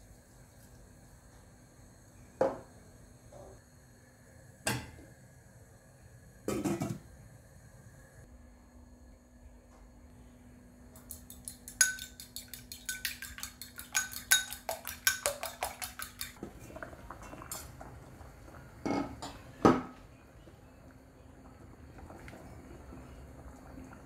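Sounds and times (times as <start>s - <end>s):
fork beating eggs in ceramic bowl: 11.0s - 16.4s.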